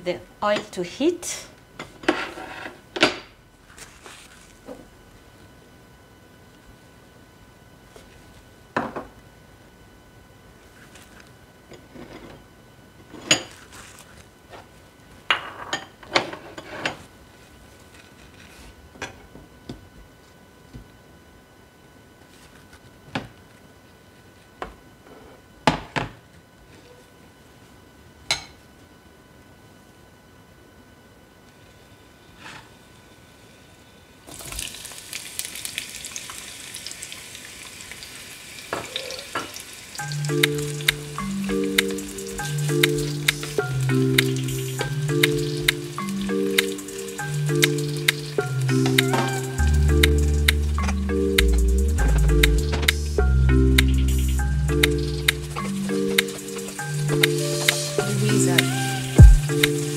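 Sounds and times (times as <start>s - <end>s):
onions sizzling in hot oil: 34.3s - 41.2s
background music: 40.0s - 59.9s.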